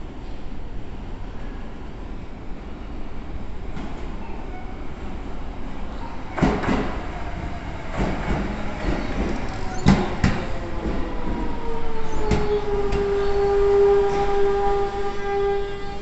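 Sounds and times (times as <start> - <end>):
electric train whine: 6.6 - 16.0
train wheels knocking over rail joints: 7.9 - 11.5.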